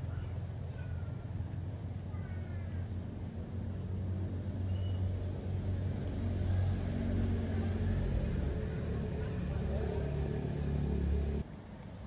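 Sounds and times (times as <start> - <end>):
motor humming: 7.7 - 11.4.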